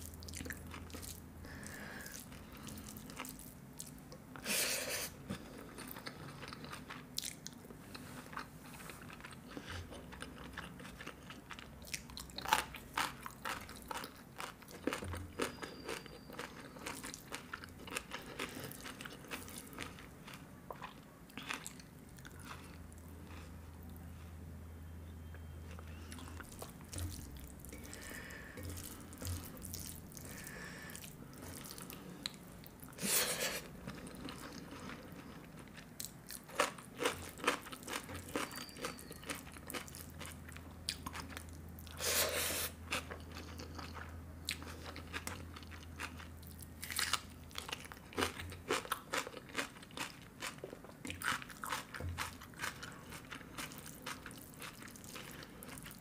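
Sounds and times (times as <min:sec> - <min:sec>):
person chewing food: 0:00.0 - 0:04.5, 0:05.2 - 0:24.4, 0:25.3 - 0:56.0
steady low hum: 0:16.6 - 0:38.4.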